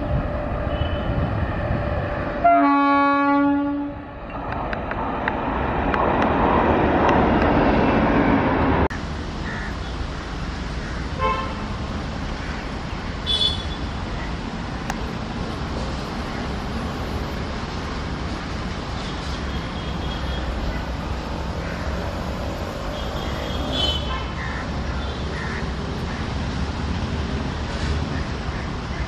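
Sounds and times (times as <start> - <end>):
distant train rumble: 0.0 - 29.0
train passing wheel and track noise: 0.0 - 29.0
train horn blast: 2.4 - 4.0.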